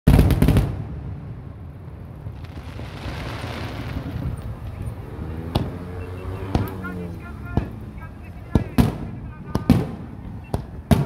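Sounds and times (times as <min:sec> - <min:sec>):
low rolling rumble: 0:00.8 - 0:05.8.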